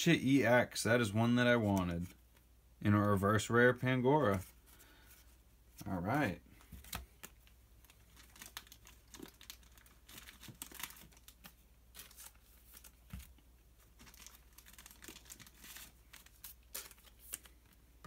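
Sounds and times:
packaging crinkling and rustling: 0:06.6 - 0:17.8.

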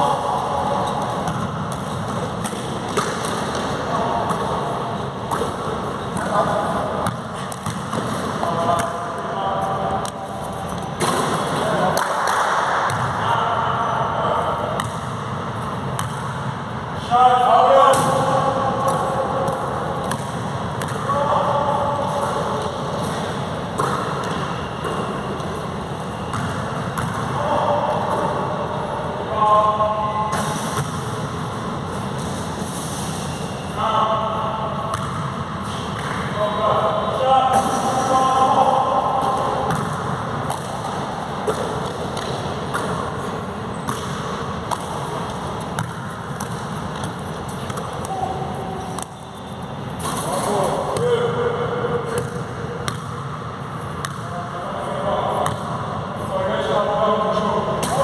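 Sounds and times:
basketballs bouncing in a gym: 0:00.0 - 0:58.0
basketball bouncing on court floor: 0:05.3 - 0:09.0, 0:11.0 - 0:13.1, 0:14.8 - 0:15.2, 0:15.9 - 0:16.4, 0:18.9 - 0:21.1, 0:26.2 - 0:27.3, 0:34.9 - 0:35.3, 0:39.2 - 0:43.1, 0:43.7 - 0:49.4, 0:52.1 - 0:53.3, 0:54.0 - 0:54.3.

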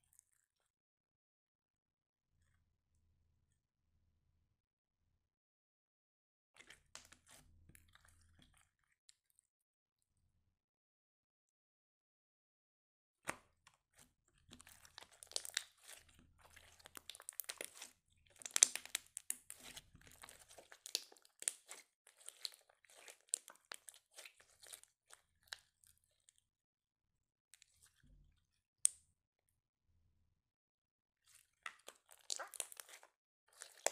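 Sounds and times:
sticky slime crackles and clicks: 0:14.6 - 0:16.0, 0:16.7 - 0:24.9, 0:31.6 - 0:33.9.

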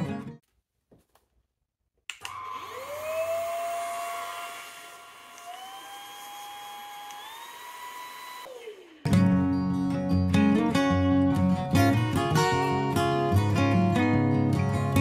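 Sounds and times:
stick vacuum motor whining: 0:02.2 - 0:09.1.

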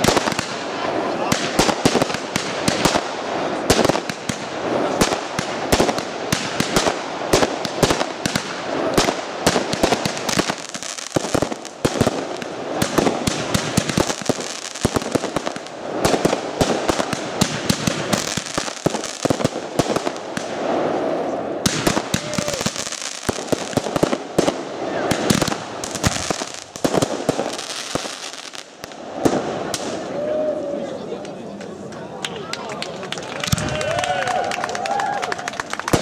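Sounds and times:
fireworks cracking and banging: 0:00.0 - 0:32.6, 0:33.2 - 0:36.0.

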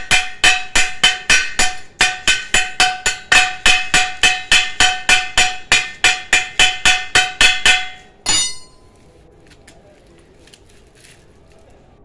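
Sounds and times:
chipping hammer striking steel: 0:00.0 - 0:08.9.

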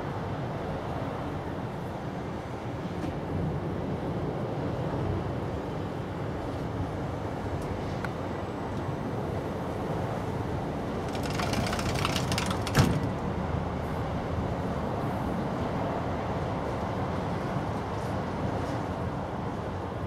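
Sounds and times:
crackling rustle: 0:11.1 - 0:12.9.

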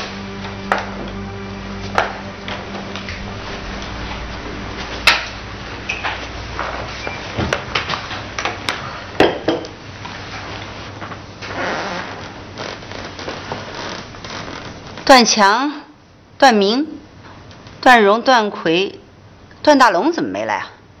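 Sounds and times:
knocks and clicks of people moving: 0:00.4 - 0:11.5.

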